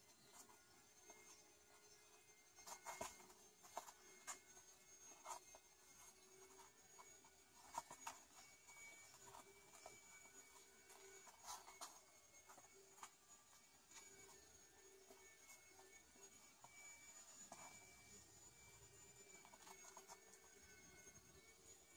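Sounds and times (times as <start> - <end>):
kitten claws scratching floor: 2.6 - 14.4.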